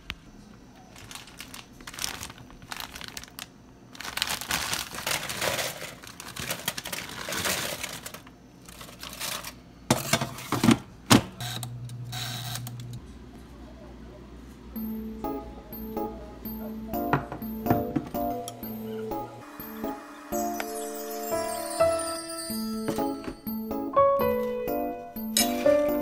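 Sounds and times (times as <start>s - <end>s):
air fryer humming: 0.7s - 26.0s
plastic bag crinkling: 0.9s - 9.6s.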